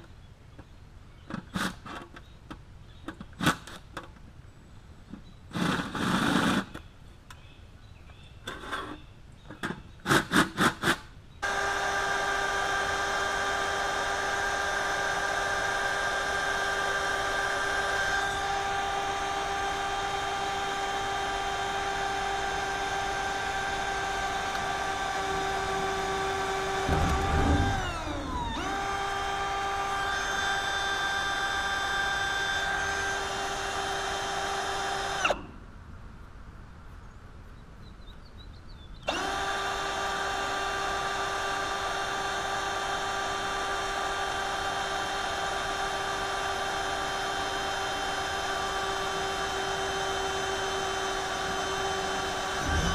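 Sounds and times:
power tool motor whining: 11.4 - 35.5, 39.1 - 52.9
power tool low knocks: 24.4 - 29.7, 50.9 - 52.9.

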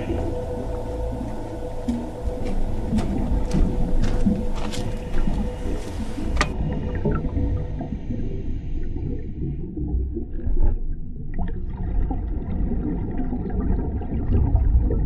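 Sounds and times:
regulator bubbles gurgling: 0.0 - 15.0
underwater low rumble: 0.0 - 15.0.

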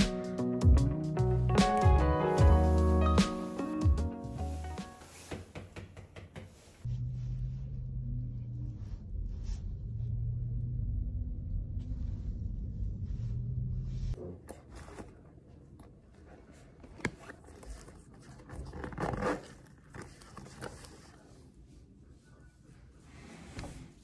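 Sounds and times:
zipper zipping: 18.6 - 20.0.

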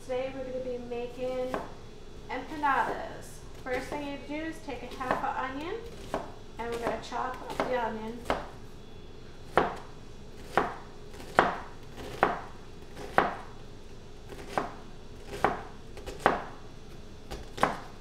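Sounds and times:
knife chopping on cutting board: 1.5 - 1.7, 5.9 - 8.5, 9.5 - 13.5, 14.3 - 16.5, 17.3 - 17.9.

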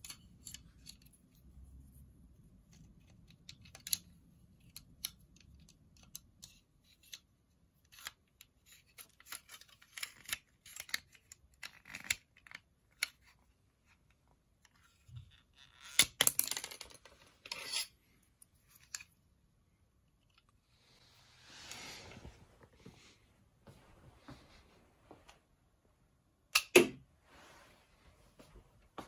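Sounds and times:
toy crossbow plastic clicks: 2.8 - 7.2.

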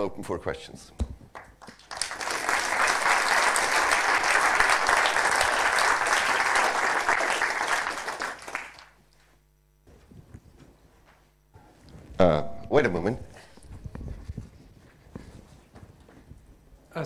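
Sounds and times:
audience applauding: 1.4 - 9.0.

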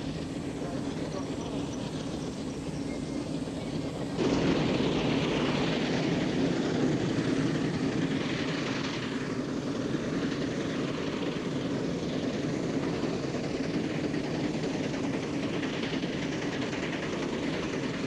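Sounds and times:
steam traction engine running: 0.0 - 18.0.

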